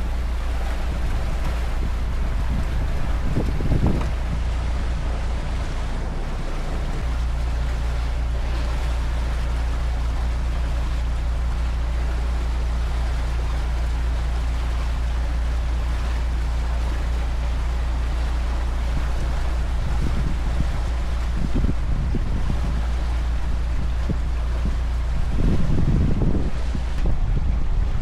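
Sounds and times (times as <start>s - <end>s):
boat engine droning: 0.0s - 28.0s
wind and water rushing: 0.0s - 28.0s.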